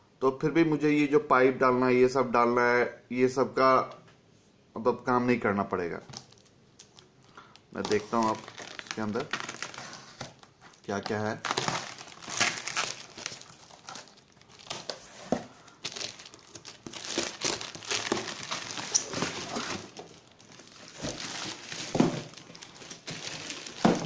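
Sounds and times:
plastic wrapping crinkling: 6.1 - 24.0.

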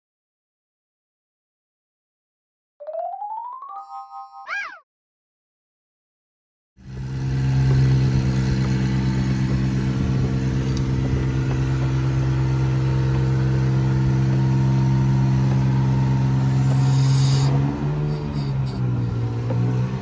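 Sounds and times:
truck engine and hydraulics humming: 6.8 - 20.0.

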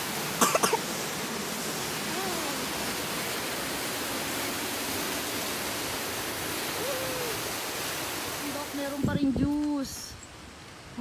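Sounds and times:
waterfall rushing: 0.0 - 9.1.

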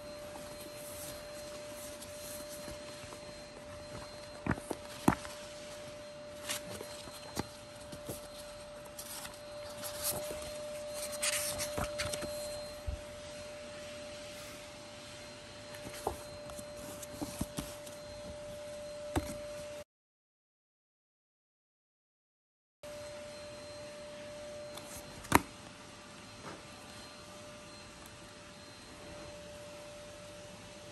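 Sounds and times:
faint steady hum: 0.0 - 19.8, 22.9 - 30.9
book pages rustling: 0.2 - 13.0, 15.7 - 18.6.

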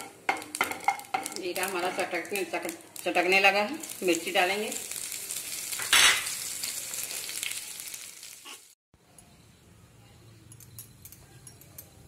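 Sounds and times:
oil sizzling in a frying pan: 0.0 - 8.8.

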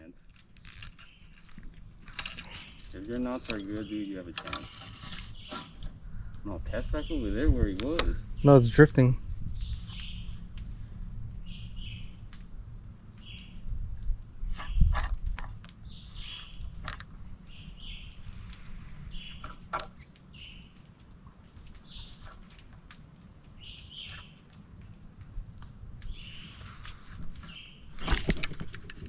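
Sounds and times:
bird chirping: 2.4 - 12.2, 13.2 - 13.6, 15.8 - 16.8, 17.4 - 18.2, 18.9 - 20.8, 23.6 - 24.4.

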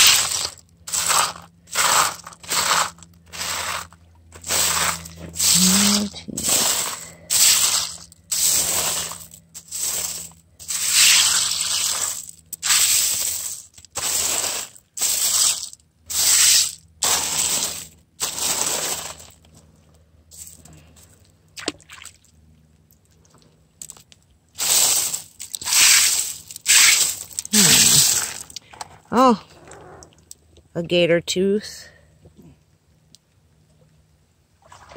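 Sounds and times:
gravel scraping on wire mesh: 0.0 - 19.6, 24.6 - 28.8.

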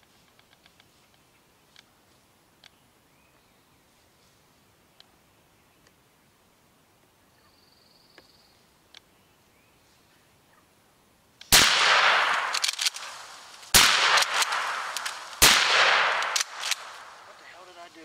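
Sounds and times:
shotgun blasts echoing: 11.5 - 17.5.

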